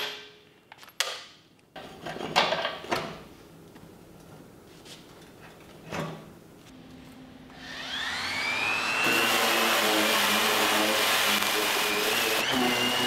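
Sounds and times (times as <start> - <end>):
electric sander whining: 7.5 - 13.0.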